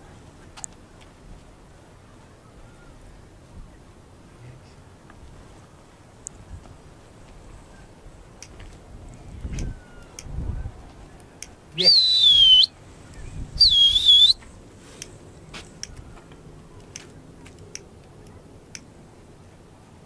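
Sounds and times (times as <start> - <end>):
person whistling loud and high: 11.8 - 12.7, 13.6 - 14.4.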